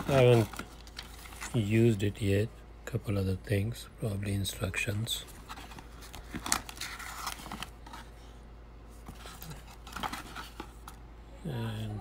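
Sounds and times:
plastic and paper rustling: 0:00.0 - 0:02.0, 0:04.8 - 0:08.3, 0:08.9 - 0:11.0.

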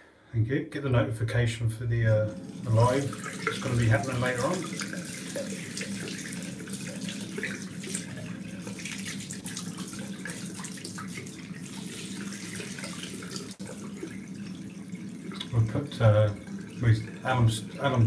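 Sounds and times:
water splashing on face: 0:02.4 - 0:15.6.

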